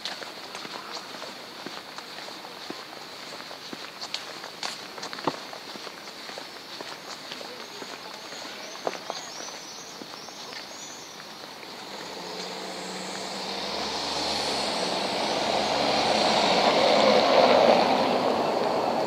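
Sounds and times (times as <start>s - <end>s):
light footsteps: 0.0s - 14.2s
vehicle engine and tyre noise: 0.0s - 19.0s.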